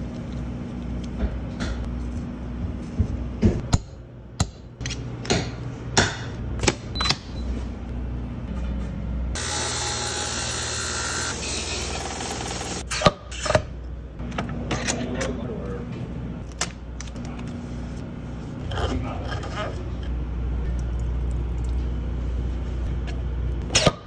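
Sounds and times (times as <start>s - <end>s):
belt sander grinding shaft: 9.4s - 12.8s.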